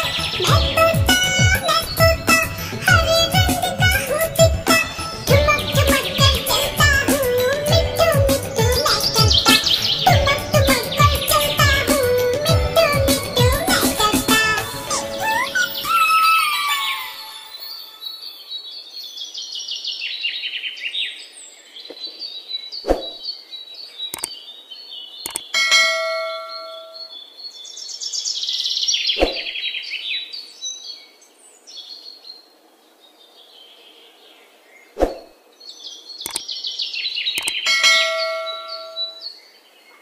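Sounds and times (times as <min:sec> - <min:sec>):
parakeet squawking: 0:00.0 - 0:17.3
sharp clicks: 0:24.1 - 0:24.3, 0:25.2 - 0:25.5, 0:36.2 - 0:36.4, 0:37.4 - 0:37.6
bell-like ding: 0:25.6 - 0:27.1, 0:37.7 - 0:39.2.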